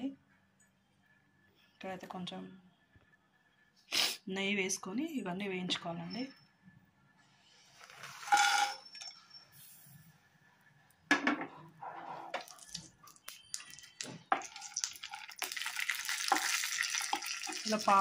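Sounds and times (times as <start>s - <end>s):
frying sizzle: 12.4s - 18.0s.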